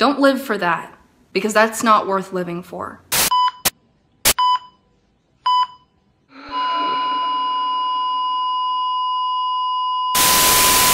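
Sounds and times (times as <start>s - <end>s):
patient monitor beeps: 3.3s - 3.7s, 4.4s - 4.8s, 5.5s - 10.2s
monitor flatline tone: 6.4s - 10.9s.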